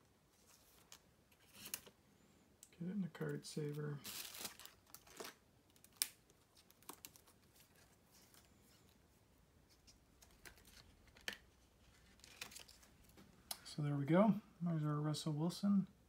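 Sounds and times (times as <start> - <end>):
plastic card sleeve clicks and scrapes: 0.4 - 2.0, 9.7 - 13.2.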